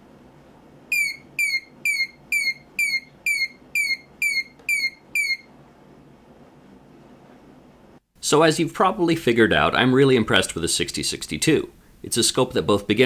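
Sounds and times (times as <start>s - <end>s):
short high beeps: 0.9s - 5.5s.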